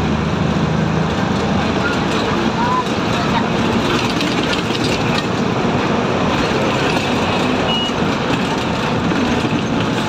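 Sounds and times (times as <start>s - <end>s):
bus engine and road rumble: 0.0s - 10.0s
short high beep: 7.7s - 8.0s.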